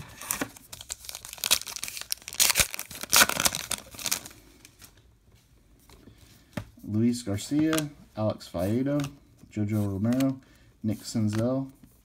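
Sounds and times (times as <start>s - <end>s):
foil wrapper tearing and crinkling: 0.1s - 4.4s.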